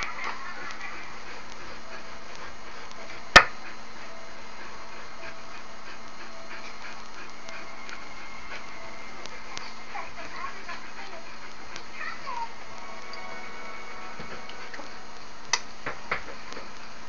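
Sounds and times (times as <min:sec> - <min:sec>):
dog panting: 0:00.0 - 0:12.8.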